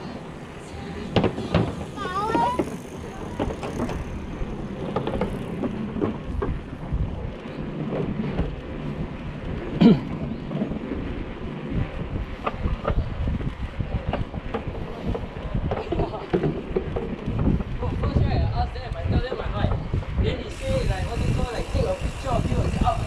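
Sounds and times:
wind buffeting microphone: 0:00.0 - 0:23.0
bike rattling over wooden bridge: 0:01.0 - 0:23.0.

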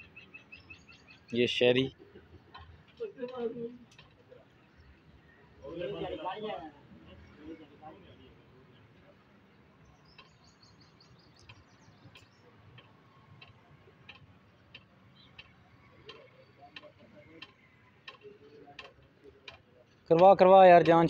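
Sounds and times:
bird chirping: 0:00.0 - 0:02.7, 0:09.5 - 0:13.2, 0:14.0 - 0:18.9.

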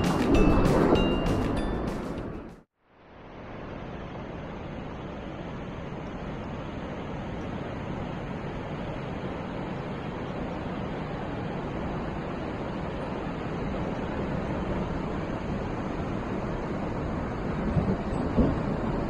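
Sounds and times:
ocean surf breaking: 0:00.0 - 0:02.5, 0:05.6 - 0:19.0.

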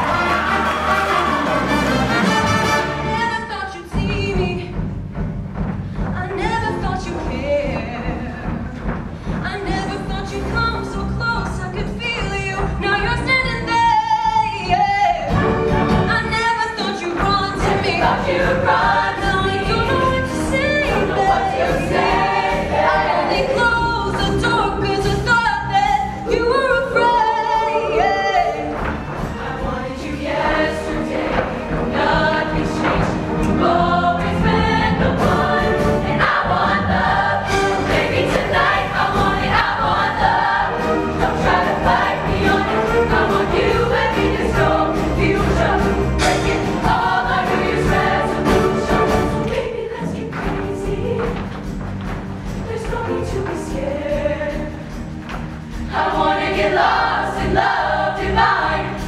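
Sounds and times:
choir singing in parts: 0:00.0 - 0:03.1, 0:17.5 - 0:25.1, 0:26.9 - 0:55.1, 0:55.7 - 0:59.0.

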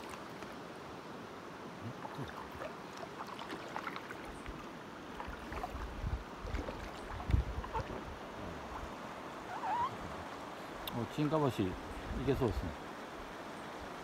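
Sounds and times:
water lapping and dripping: 0:00.0 - 0:00.7, 0:01.8 - 0:11.6
wind rumble on microphone: 0:05.3 - 0:09.0.

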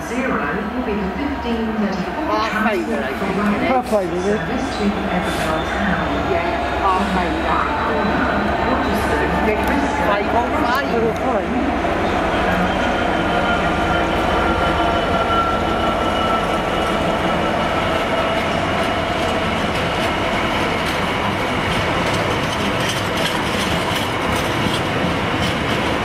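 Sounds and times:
diesel locomotive rumble and whine: 0:00.0 - 0:26.0
wheels clicking over rail joints: 0:19.2 - 0:26.0.

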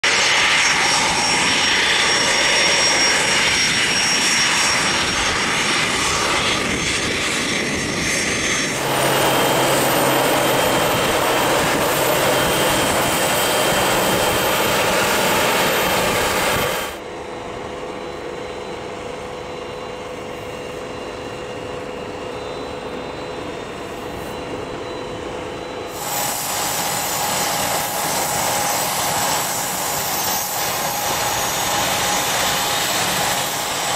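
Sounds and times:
aircraft ground noise: 0:00.0 - 0:33.9
jet engines running: 0:00.0 - 0:33.9
steady hum: 0:08.7 - 0:17.0.

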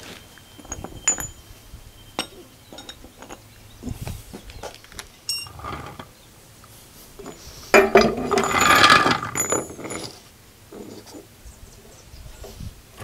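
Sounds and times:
metal tools clinking: 0:00.0 - 0:03.6, 0:05.2 - 0:06.1, 0:07.2 - 0:10.2.

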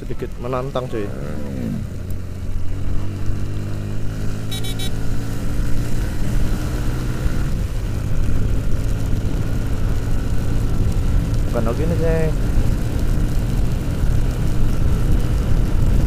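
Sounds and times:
motorcycle engine cruising: 0:00.0 - 0:16.0
high beeps: 0:04.5 - 0:05.0.

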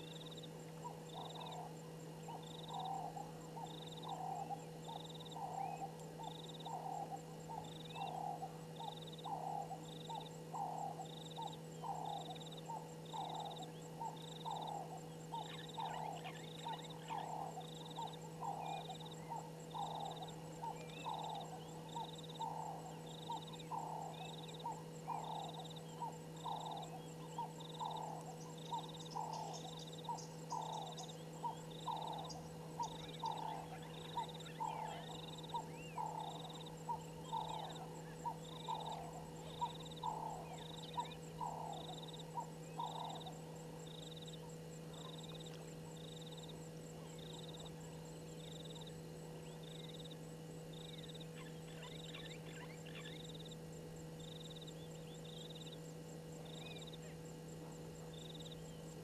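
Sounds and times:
constant low hum: 0:00.0 - 0:59.0
low animal calls: 0:00.8 - 0:46.3.

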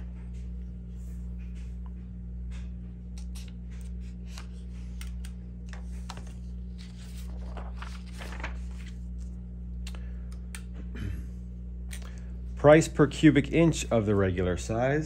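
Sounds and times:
steady low hum: 0:00.0 - 0:15.0
paper rustling on a clipboard: 0:03.2 - 0:09.4.

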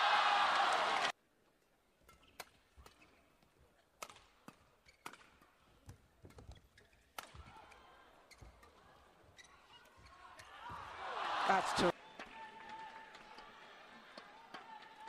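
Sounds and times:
rackets hitting shuttlecock: 0:04.0 - 0:08.8
shoes squeaking on court: 0:04.6 - 0:07.4, 0:08.3 - 0:10.5.

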